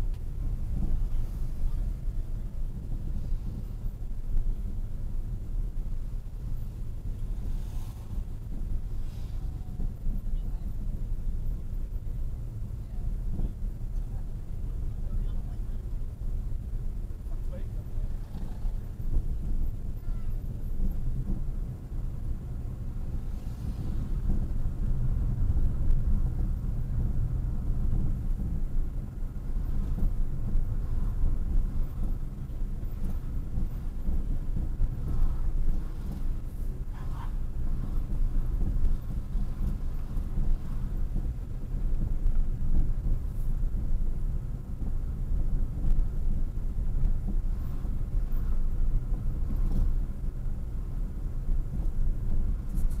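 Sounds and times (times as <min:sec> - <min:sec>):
car engine and road noise: 0:00.0 - 0:53.0.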